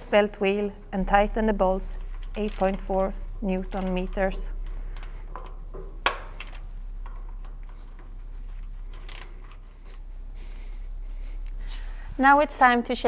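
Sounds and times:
steady low hum: 0:00.0 - 0:13.0
torque wrench clicks: 0:02.2 - 0:07.5, 0:08.9 - 0:09.6.

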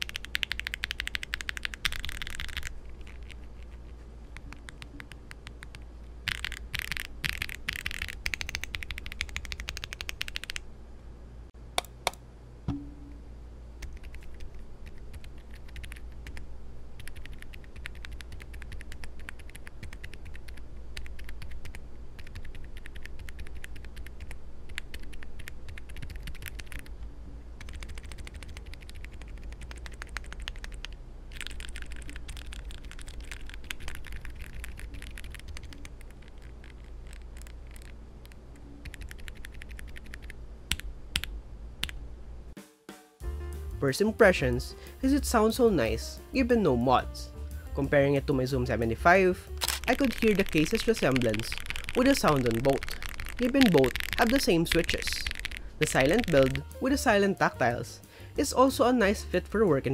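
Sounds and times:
muted keystrokes on keypad: 0:00.0 - 0:02.7, 0:49.6 - 0:56.8
low steady hum: 0:00.0 - 0:42.6, 0:43.2 - 0:59.9.

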